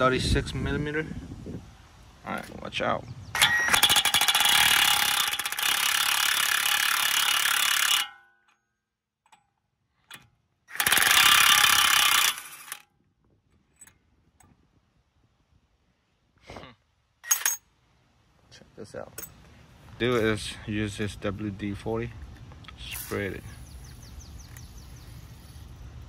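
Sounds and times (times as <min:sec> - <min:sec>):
impact wrench hammering: 0:03.4 - 0:08.6.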